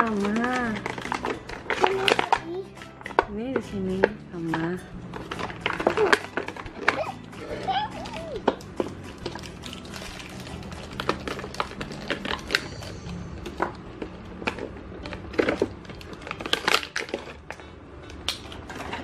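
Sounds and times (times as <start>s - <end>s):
plastic packet crinkling: 0.0s - 2.4s, 5.1s - 13.0s, 14.5s - 17.5s.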